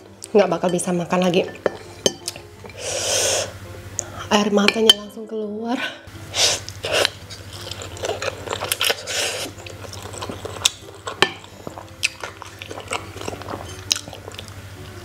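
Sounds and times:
low steady hum: 0.0 - 15.0
person chewing noodles: 6.5 - 14.6.

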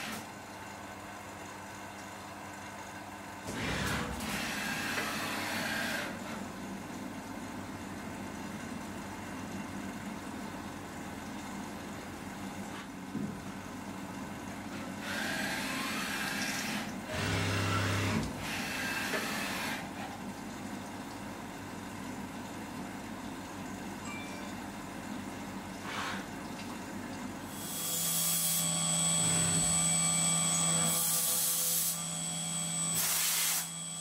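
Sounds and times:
milling machine hum: 15.0 - 20.0, 27.0 - 34.0
spindle whine: 28.6 - 34.0.

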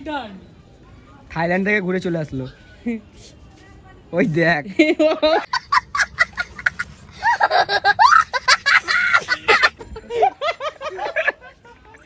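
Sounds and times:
boy laughing: 4.8 - 12.0.

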